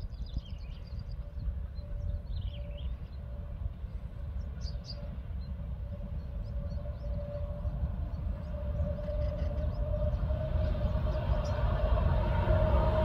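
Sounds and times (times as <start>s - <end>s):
distant locomotive rumble: 0.0s - 13.0s.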